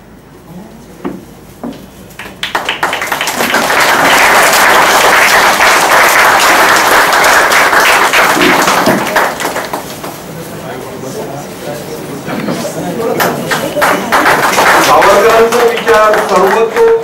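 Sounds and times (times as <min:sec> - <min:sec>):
audience applauding: 0:02.2 - 0:10.3, 0:13.1 - 0:17.0.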